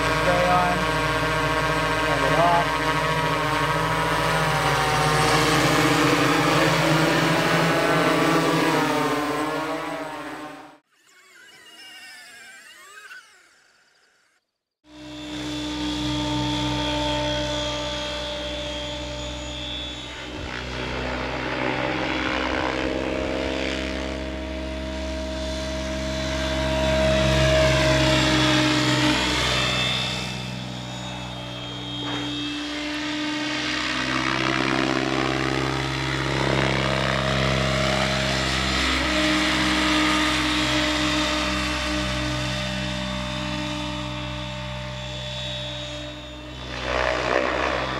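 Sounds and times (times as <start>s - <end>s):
rc helicopter rotor whine: 0.0s - 47.9s.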